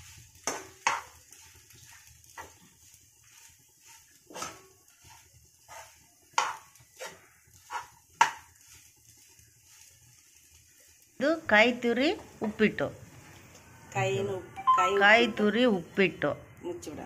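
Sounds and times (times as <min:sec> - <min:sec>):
steel spoon scraping a frying pan: 0:00.0 - 0:11.0.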